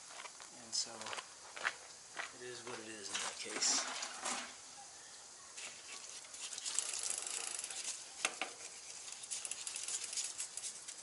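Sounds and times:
hand scrubbing wet bike frame: 5.6 - 11.0.

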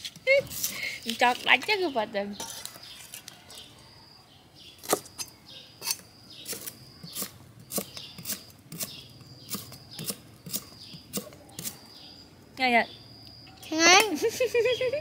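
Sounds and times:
knife chopping on wooden block: 9.5 - 11.8.

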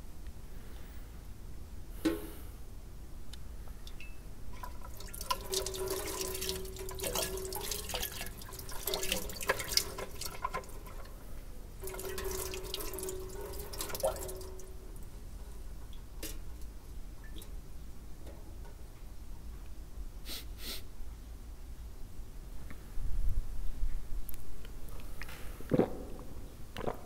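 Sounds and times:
tap water splashing into sink: 4.6 - 11.1, 11.8 - 15.1.

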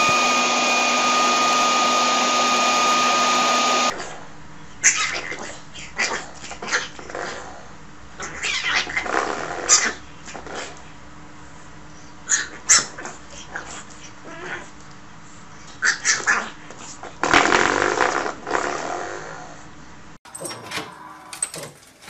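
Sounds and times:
puppy growling: 4.8 - 10.9, 12.3 - 14.8, 15.8 - 19.7.

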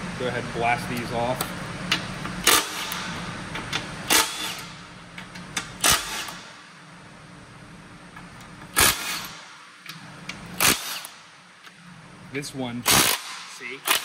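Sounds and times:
impact wrench bursts: 2.4 - 3.2, 4.0 - 4.8, 5.6 - 6.7, 8.7 - 9.7, 10.6 - 11.3, 12.8 - 14.0.

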